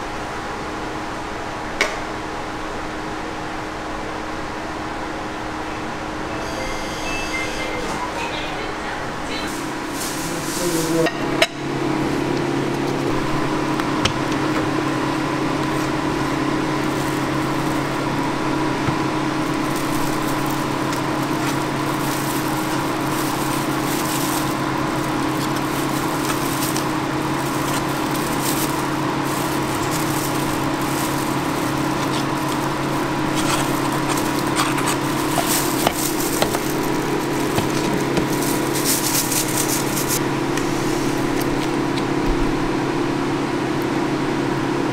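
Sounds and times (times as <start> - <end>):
kitchen machine hum: 0.0 - 44.9.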